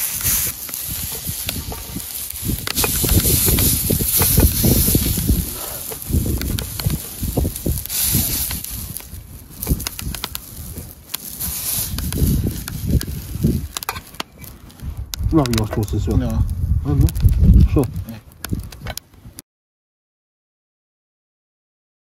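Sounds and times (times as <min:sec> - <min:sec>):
patties sizzling in frying pans: 0:00.0 - 0:16.3
sharp crackles and clicks: 0:00.0 - 0:19.4
low rumbling thumps: 0:14.8 - 0:18.7.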